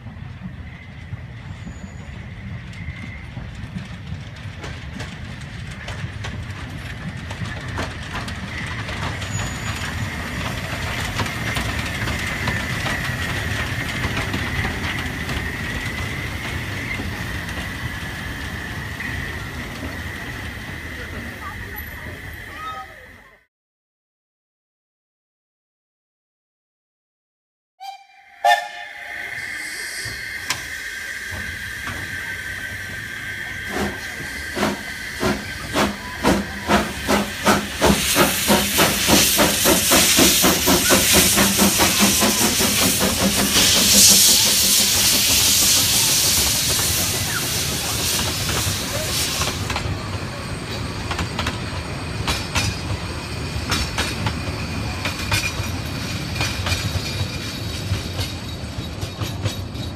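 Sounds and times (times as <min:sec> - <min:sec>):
train wheel clatter: 0:00.0 - 0:22.8, 0:29.4 - 0:59.9
steam locomotive exhaust chuffs: 0:00.0 - 0:22.9, 0:27.8 - 0:59.9
steam hissing: 0:07.1 - 0:23.1, 0:28.4 - 0:59.0
steam locomotive whistle: 0:27.8 - 0:49.7.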